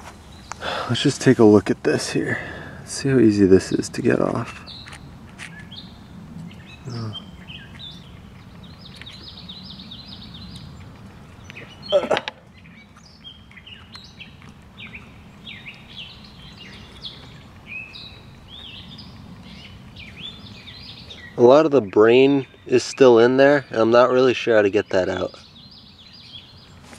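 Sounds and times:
low steady outdoor rumble: 0:00.0 - 0:26.9
songbirds chirping and singing: 0:00.0 - 0:26.9.

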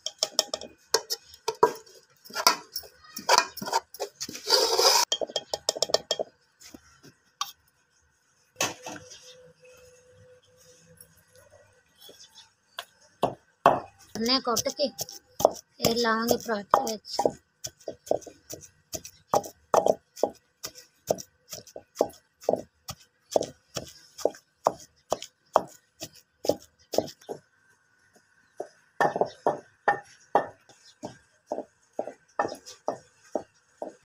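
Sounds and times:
wooden pestle thudding in mortar: 0:14.6 - 0:22.7.

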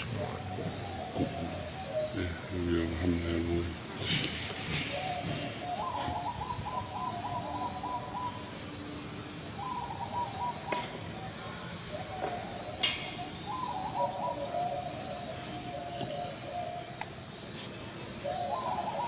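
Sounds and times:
bird warbling call: 0:04.3 - 0:08.8, 0:09.6 - 0:17.5, 0:18.1 - 0:19.0.

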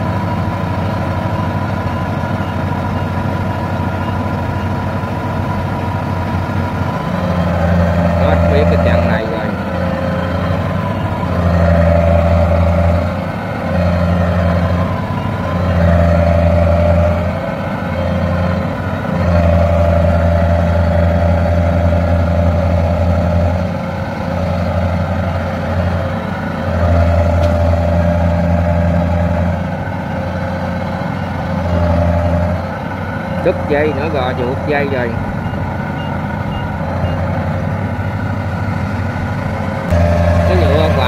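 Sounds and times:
harvester diesel engine straining: 0:00.0 - 0:41.0.

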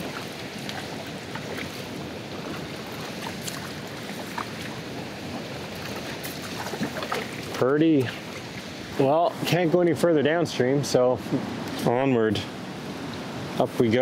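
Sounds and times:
water drips and splashes: 0:00.0 - 0:09.6
paddle strokes in water: 0:00.0 - 0:09.8.

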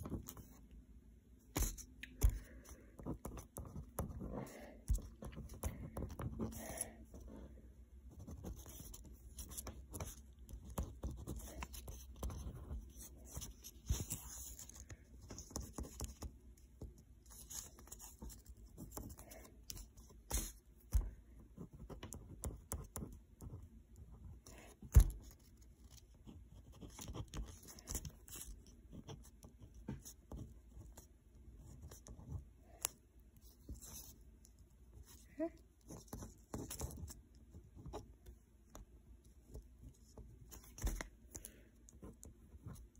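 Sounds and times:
pen scratching on paper: 0:01.6 - 0:07.5, 0:08.1 - 0:16.3, 0:17.3 - 0:34.2, 0:39.9 - 0:42.9.

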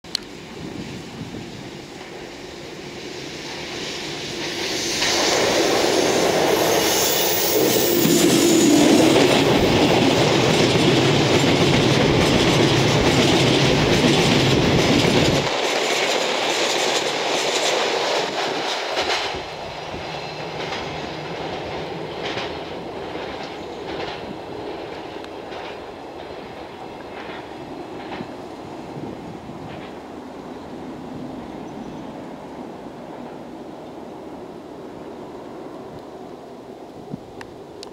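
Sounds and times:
train passing: 0:00.1 - 0:37.9
wheels clacking over rail joints: 0:04.4 - 0:28.6.

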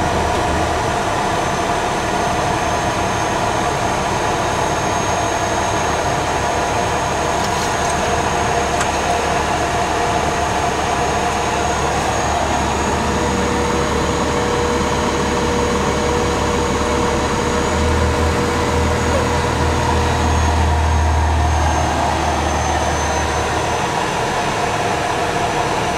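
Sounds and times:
truck engine rumble: 0:00.0 - 0:25.9
road noise: 0:15.8 - 0:25.6.

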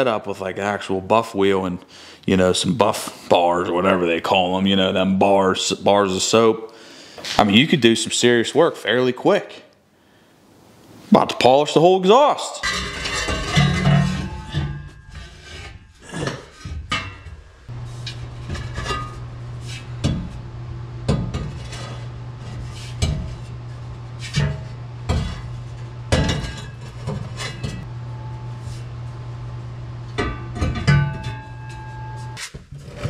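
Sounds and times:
metal pipe knocking and scraping: 0:12.6 - 0:20.4, 0:21.1 - 0:27.9, 0:30.2 - 0:33.0
steady low hum: 0:12.6 - 0:33.0.

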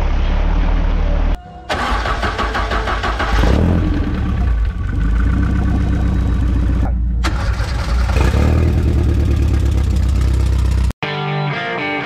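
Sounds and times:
buggy engine running close up: 0:03.2 - 0:10.9.

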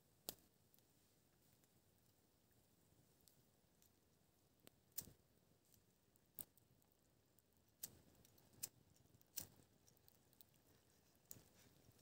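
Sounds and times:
campfire crackling and popping: 0:07.4 - 0:10.6.

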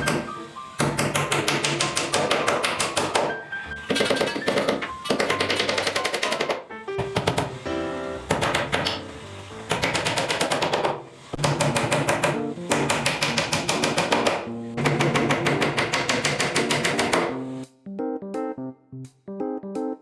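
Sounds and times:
hammer striking plywood: 0:00.0 - 0:07.6, 0:08.3 - 0:09.0, 0:09.7 - 0:17.4
background music: 0:00.0 - 0:10.4, 0:11.5 - 0:20.0.

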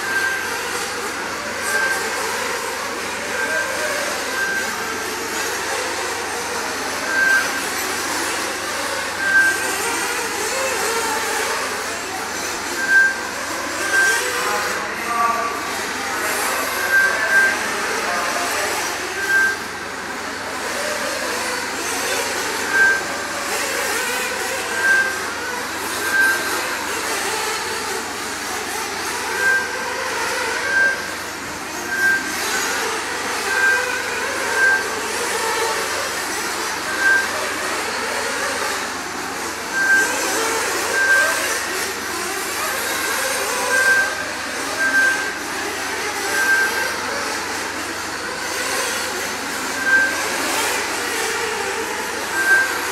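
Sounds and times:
short high beeps: 0:00.0 - 0:00.4, 0:01.6 - 0:02.1, 0:03.4 - 0:04.8, 0:07.0 - 0:07.6, 0:09.0 - 0:09.7, 0:12.4 - 0:19.8, 0:22.3 - 0:23.3, 0:24.6 - 0:26.9, 0:29.3 - 0:29.8, 0:30.5 - 0:32.8, 0:33.5 - 0:35.1, 0:36.6 - 0:37.4, 0:39.6 - 0:42.0, 0:42.9 - 0:45.4, 0:46.2 - 0:47.7, 0:49.7 - 0:50.9, 0:52.2 - 0:52.9
rc car engines buzzing and revving: 0:00.0 - 0:52.9.

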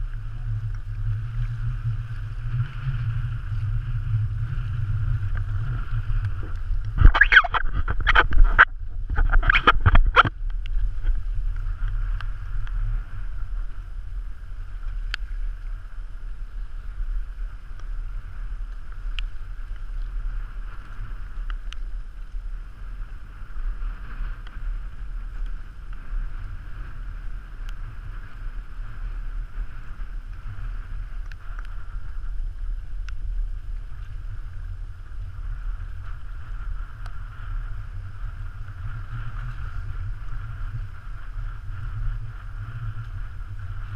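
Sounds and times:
faint ticks: 0:00.0 - 0:43.9
water rushing along hull: 0:00.0 - 0:43.9
wind buffeting microphone: 0:00.0 - 0:43.9.

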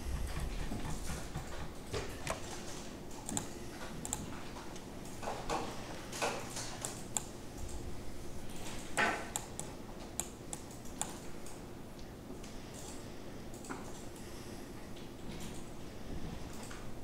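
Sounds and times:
steady low hum: 0:00.0 - 0:17.0
mouse and keyboard clicks: 0:03.2 - 0:04.3.

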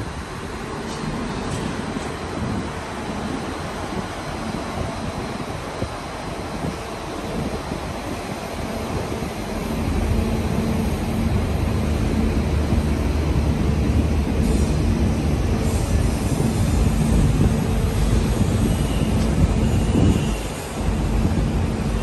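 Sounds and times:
steady hum: 0:00.0 - 0:22.0
vehicle engine rumbling: 0:09.2 - 0:22.0.

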